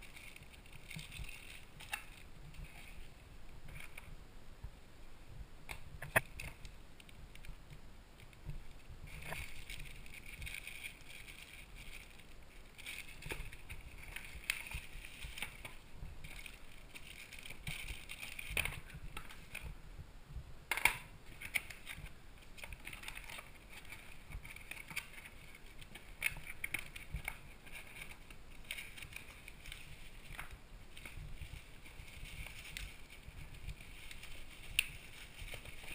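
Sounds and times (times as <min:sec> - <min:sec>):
packaging rustling and crinkling: 0:00.0 - 0:04.1, 0:06.0 - 0:19.8, 0:20.7 - 0:35.9
sharp clicks and knocks: 0:05.6 - 0:08.6.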